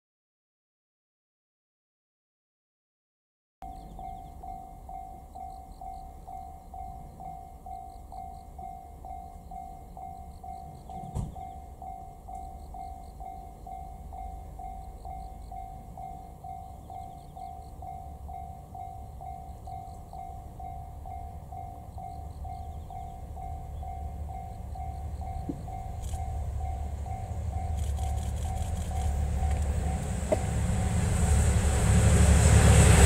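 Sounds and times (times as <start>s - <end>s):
low rumble: 22.4s - 33.0s.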